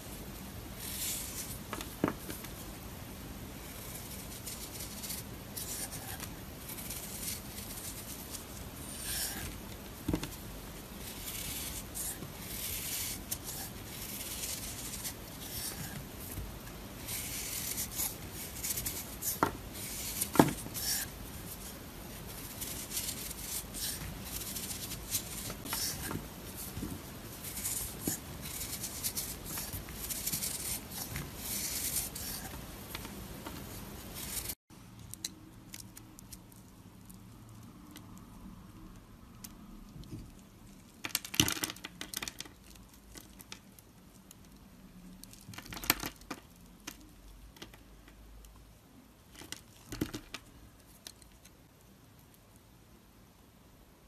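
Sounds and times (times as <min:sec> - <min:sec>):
knife scraping soap: 0:11.0 - 0:16.1.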